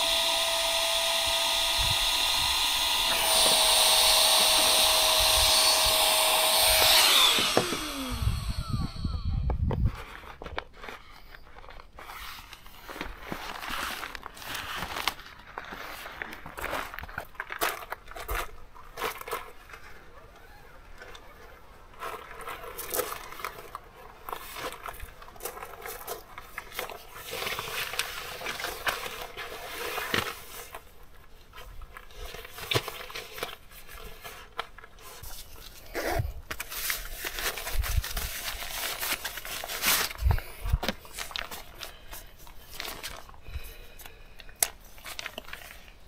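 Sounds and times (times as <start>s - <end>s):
air sleeping pad rustling and scraping: 9.6s - 17.2s, 21.9s - 44.0s.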